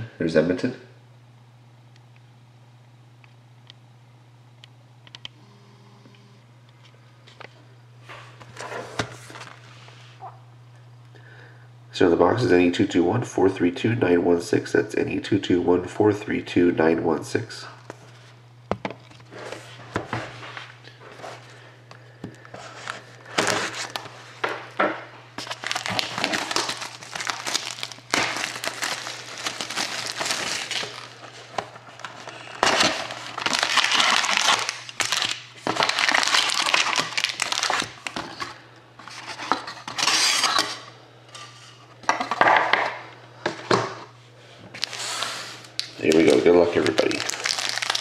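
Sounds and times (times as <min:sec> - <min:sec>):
steady low hum: 0:00.0 - 0:48.0
foil wrappers crinkling: 0:22.6 - 0:24.3, 0:25.4 - 0:40.8, 0:44.7 - 0:48.0.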